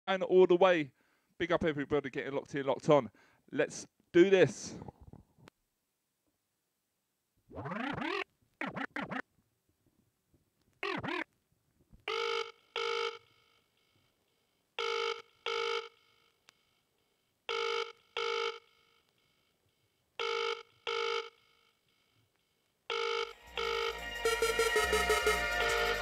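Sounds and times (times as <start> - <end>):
drum and bass music: 23.4 - 26.0.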